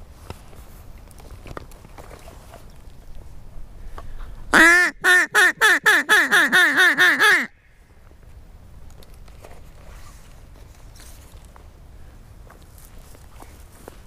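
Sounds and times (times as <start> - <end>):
duck call quacking: 4.5 - 7.6.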